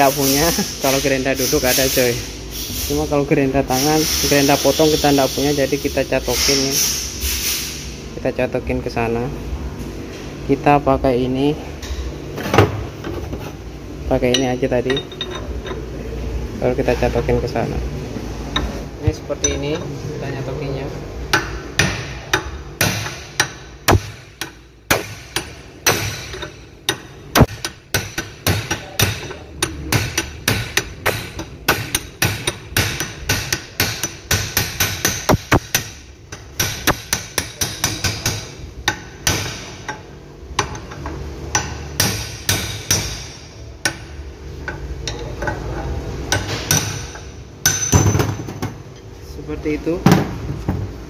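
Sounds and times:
hammer striking steel rod: 0:21.3 - 0:40.0, 0:46.3 - 0:48.1.

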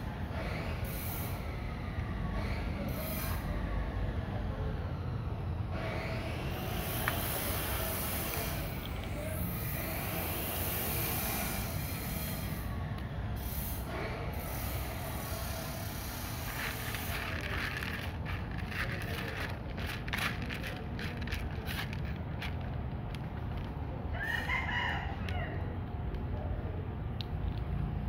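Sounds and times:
low outdoor rumble: 0:00.0 - 0:28.0
kittens crunching dry kibble: 0:15.9 - 0:24.0.

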